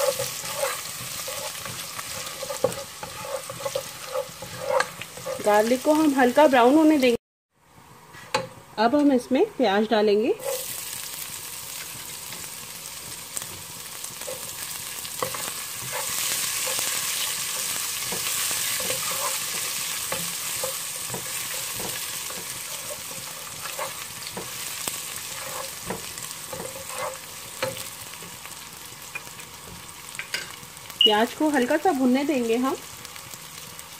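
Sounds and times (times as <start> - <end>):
wooden spatula scraping a pan: 0.0 - 6.1, 10.3 - 10.8, 13.4 - 28.4
onions sizzling in hot oil: 0.0 - 7.2, 9.8 - 33.9.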